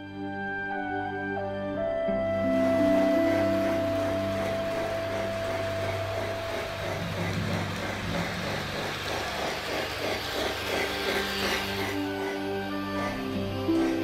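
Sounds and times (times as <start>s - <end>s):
soft music: 0.0s - 7.8s, 10.8s - 14.0s
model train rattling on track: 2.5s - 14.0s.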